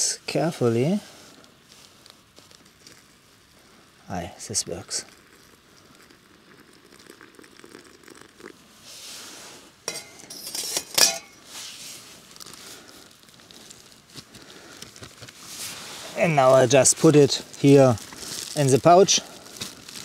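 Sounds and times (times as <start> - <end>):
boiling water pouring: 0.2 - 20.0
metal pot clinking: 9.8 - 11.4
plastic bag crinkling: 12.0 - 20.0.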